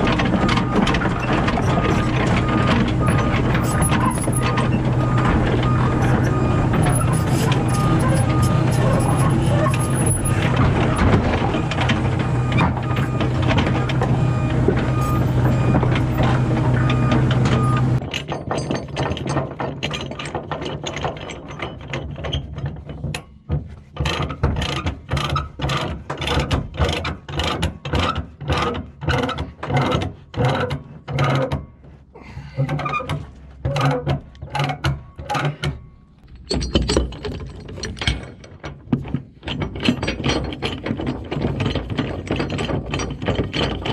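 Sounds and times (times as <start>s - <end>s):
diesel engine idling: 1.8s - 18.0s.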